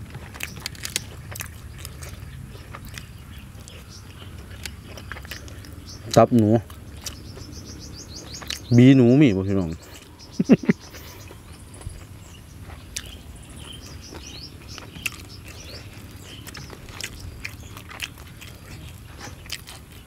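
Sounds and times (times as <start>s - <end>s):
person chewing: 0.0s - 7.6s, 8.3s - 8.7s, 9.8s - 20.0s.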